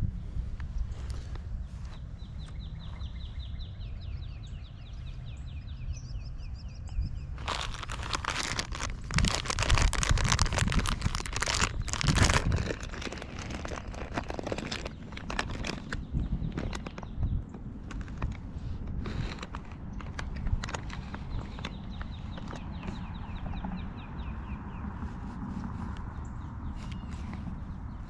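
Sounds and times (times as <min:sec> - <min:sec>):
rustling and crinkling: 0:07.4 - 0:23.5, 0:24.9 - 0:28.0.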